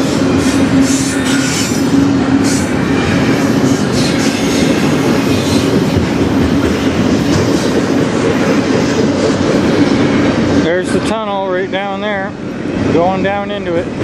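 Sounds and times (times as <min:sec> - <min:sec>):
train wheels rumbling on rails: 0:00.0 - 0:14.0
high wheel screeches: 0:00.3 - 0:05.6.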